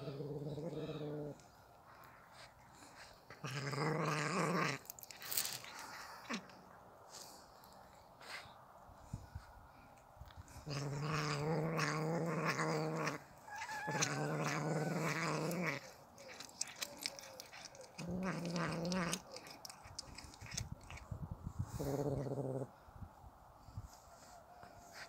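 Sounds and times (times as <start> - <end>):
cat growling: 0.0 - 1.6, 2.4 - 6.6, 10.4 - 22.7
cat yowling: 10.7 - 19.5
cat chewing clicks: 15.2 - 21.0.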